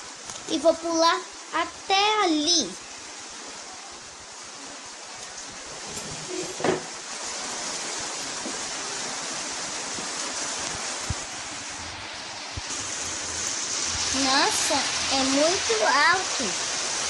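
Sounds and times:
heavy rain hiss: 0.0s - 17.0s
knock: 6.4s - 6.9s.

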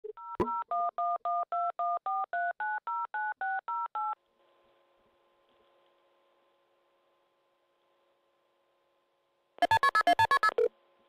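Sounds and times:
two-tone keypad beeps: 9.6s - 10.7s.

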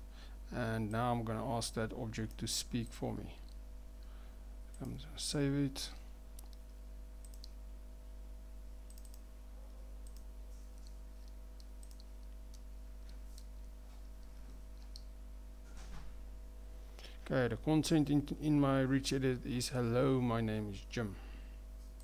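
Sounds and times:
low electrical hum: 0.0s - 22.0s
computer mouse clicks: 6.4s - 7.6s, 8.9s - 9.2s, 10.0s - 15.1s.

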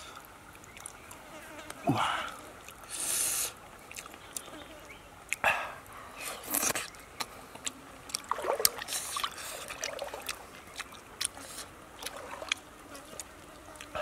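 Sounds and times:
person chewing with mouth clicks: 3.9s - 4.5s, 6.4s - 14.0s.

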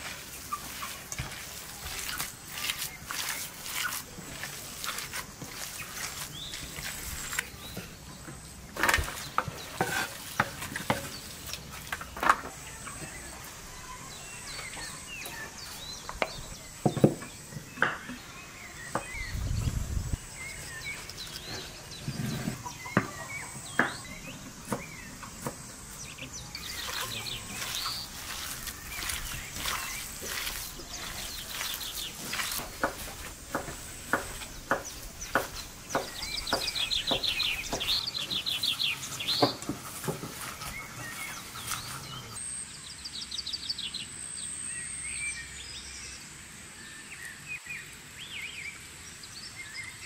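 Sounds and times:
hands squelching wet minced meat: 0.0s - 7.7s, 26.6s - 42.2s.

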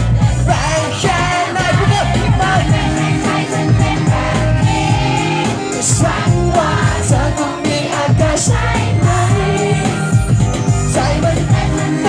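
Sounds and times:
pop backing track with beat: 0.0s - 12.0s
man singing into microphone: 0.5s - 2.8s, 5.8s - 8.5s, 10.9s - 12.0s.

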